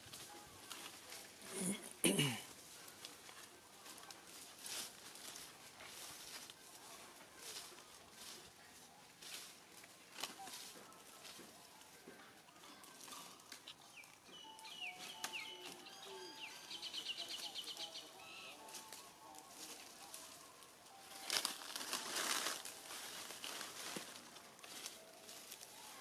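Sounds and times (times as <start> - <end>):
dry leaves rustling and crackling: 0.0 - 26.0
birds singing: 13.6 - 18.9.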